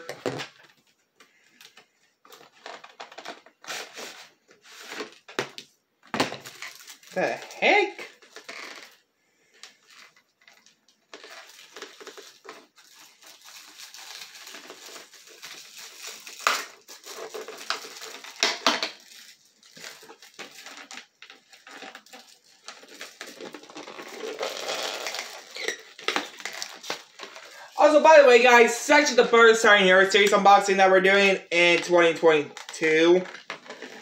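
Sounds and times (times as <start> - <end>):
cardboard ripping: 2.4 - 5.2, 11.2 - 27.6.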